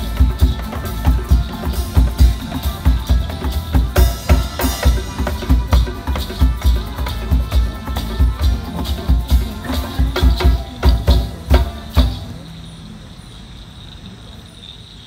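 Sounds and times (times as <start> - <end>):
drum and percussion music: 0.0 - 12.6
faint cricket chirping: 8.1 - 15.0.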